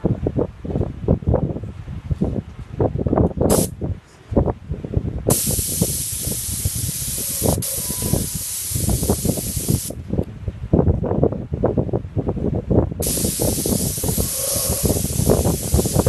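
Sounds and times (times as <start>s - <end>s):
spray gun hissing: 3.5s - 3.7s, 5.3s - 10.0s, 13.0s - 16.0s.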